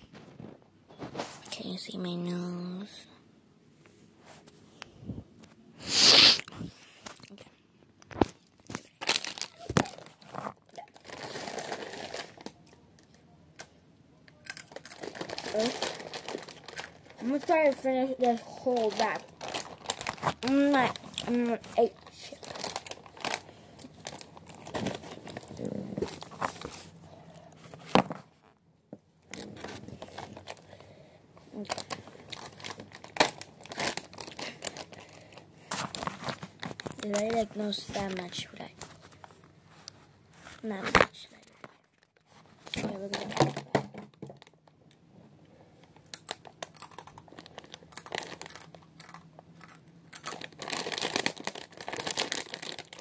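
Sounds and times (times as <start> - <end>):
chip bag crinkling: 8.2 - 13.1, 14.4 - 27.0, 29.3 - 39.4, 46.0 - 53.0.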